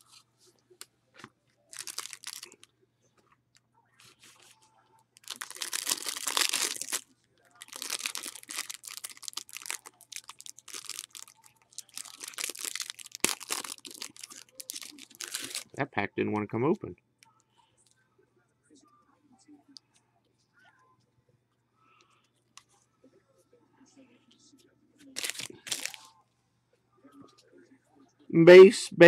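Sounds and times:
wrapper tearing and crinkling: 1.7s - 2.6s, 5.2s - 7.0s, 7.6s - 15.8s, 25.2s - 26.0s.

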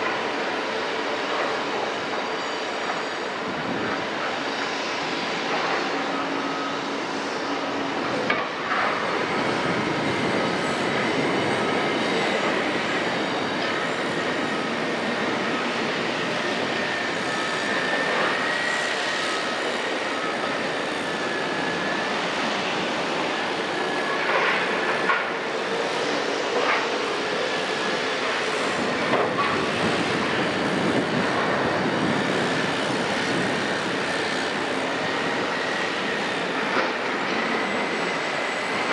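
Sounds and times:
crane machinery noise: 0.0s - 38.9s.

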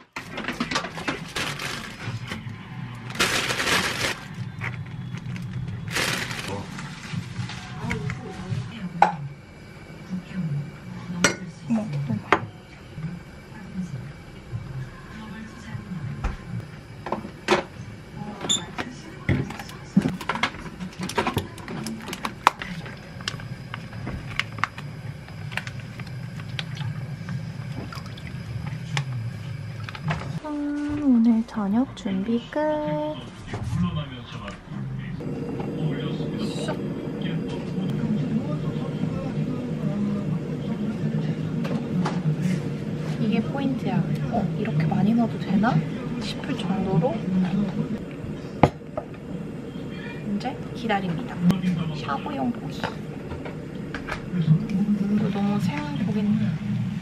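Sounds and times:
low steady hum: 0.0s - 57.0s
plastic bag crinkling: 1.0s - 2.4s, 3.0s - 4.4s, 5.2s - 7.9s
liquid pouring and bubbling: 21.0s - 30.4s.

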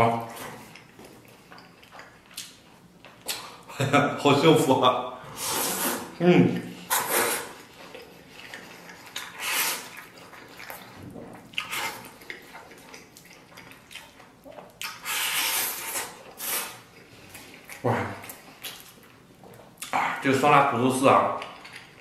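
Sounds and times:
wet chewing and sucking: 5.3s - 20.2s.

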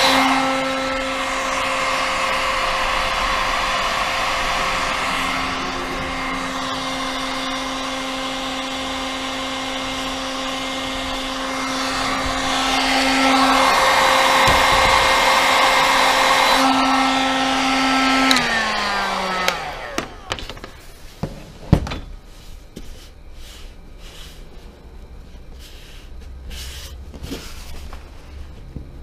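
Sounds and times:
heat gun fan winding down: 0.0s - 21.2s
heat gun running: 0.0s - 21.3s.

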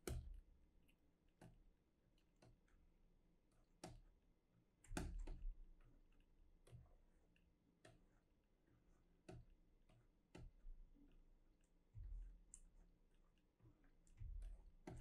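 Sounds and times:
faint desk clicks and taps: 0.0s - 0.4s, 1.4s - 1.6s, 3.8s - 4.1s, 4.8s - 5.6s, 9.2s - 10.6s, 13.6s - 15.0s.

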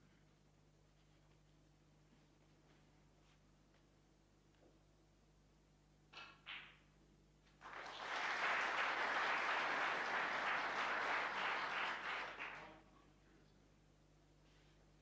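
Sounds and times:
audience applauding: 7.6s - 12.8s.

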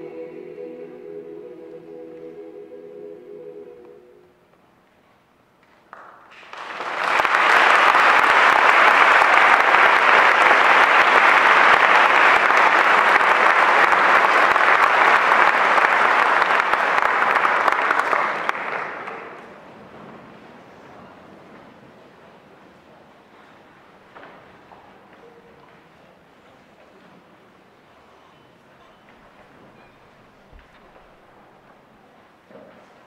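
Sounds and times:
audience applause: 5.9s - 19.6s.

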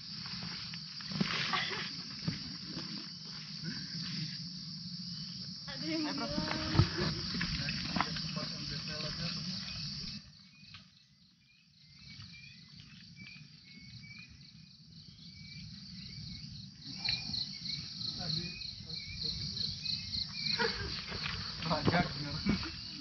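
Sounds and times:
insects buzzing: 0.0s - 23.0s
short insect chirp: 0.0s - 23.0s.

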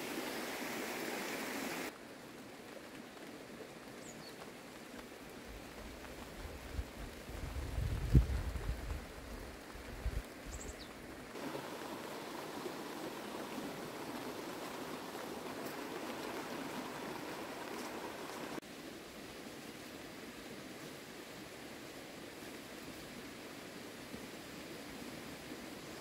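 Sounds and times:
wind rumble on microphone: 5.8s - 10.8s.

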